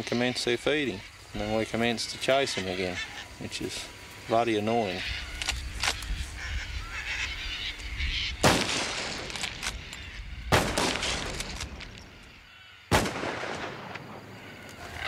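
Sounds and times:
rifle shots: 8.4s - 9.8s, 10.5s - 11.7s, 12.9s - 14.2s.

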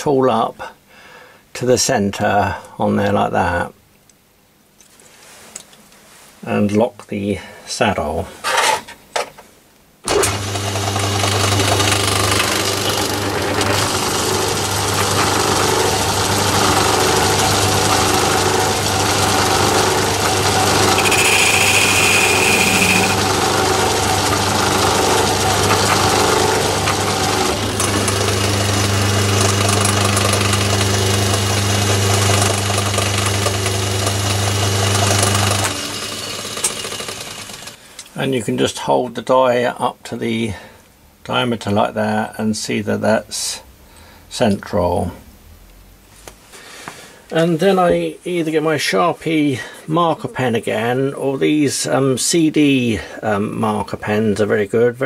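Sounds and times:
metal lathe motor hum: 10.1s - 37.8s
high-pitched squeal: 20.7s - 23.3s.

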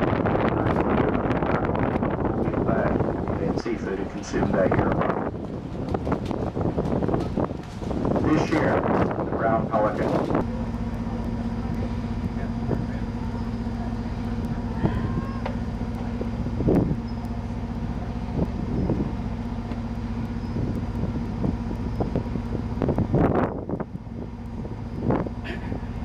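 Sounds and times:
wind gusts on microphone: 0.0s - 10.5s, 16.1s - 17.1s, 18.2s - 19.3s, 20.2s - 26.0s
boat engine droning: 0.0s - 26.0s.

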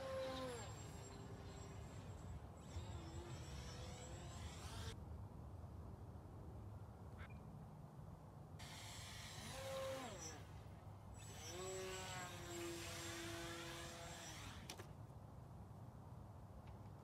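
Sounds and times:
electric motor and propeller whining: 0.0s - 5.0s, 8.6s - 14.8s.

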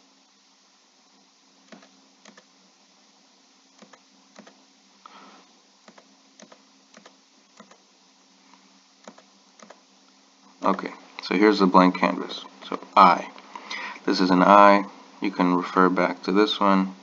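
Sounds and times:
low steady hum: 0.0s - 17.0s
computer mouse clicks: 1.7s - 2.5s, 3.8s - 4.6s, 5.8s - 7.8s, 9.0s - 9.8s.

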